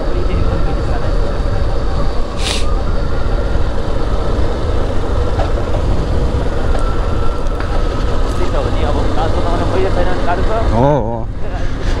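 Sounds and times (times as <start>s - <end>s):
car road and engine rumble: 0.0s - 12.0s
brief hiss: 2.4s - 2.8s.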